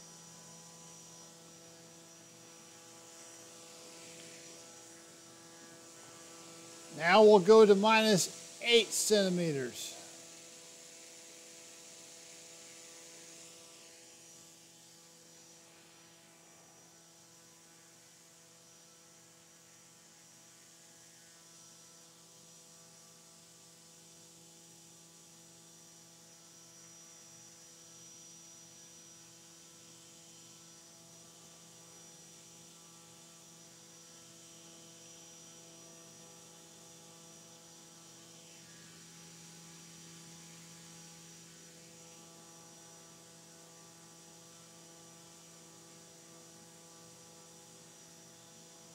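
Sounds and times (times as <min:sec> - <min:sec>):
motor spinning propeller hum: 0:00.0 - 0:16.7.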